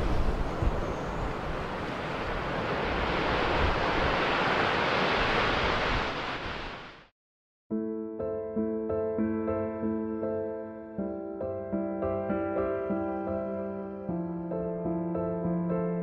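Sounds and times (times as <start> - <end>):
sea surf waves: 0.0 - 7.1
piano music: 7.7 - 16.0.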